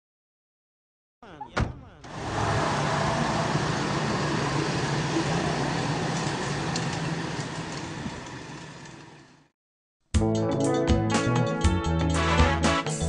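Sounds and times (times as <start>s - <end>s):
rushing noise: 2.1s - 8.7s
engine-like running with low hum: 2.1s - 9.5s.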